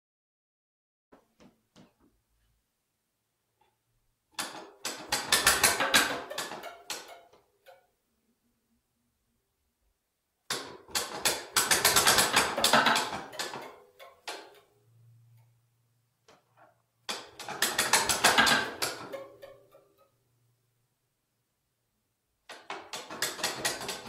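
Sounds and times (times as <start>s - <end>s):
faint low hum: 14.7s - 17.1s.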